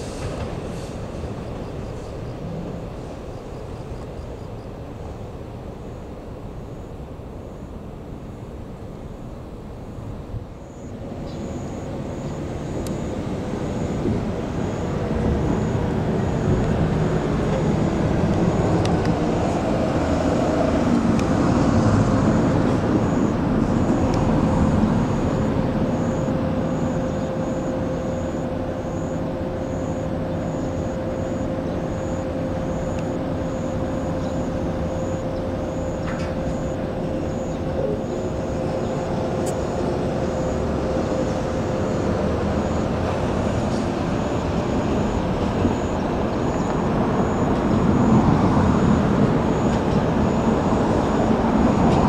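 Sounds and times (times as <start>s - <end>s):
steady traffic hum: 0.0s - 52.0s
vehicle passing: 11.5s - 52.0s.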